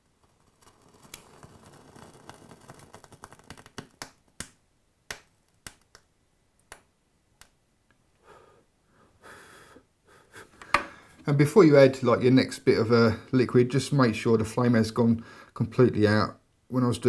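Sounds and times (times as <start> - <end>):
burning wick popping: 0.0 - 6.1
wick crackling and sizzling: 0.0 - 6.1.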